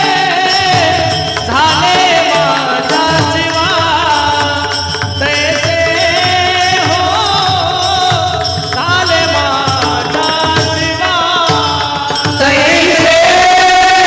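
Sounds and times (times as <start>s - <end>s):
drumming: 0.0s - 14.0s
jingling percussion: 0.0s - 14.0s.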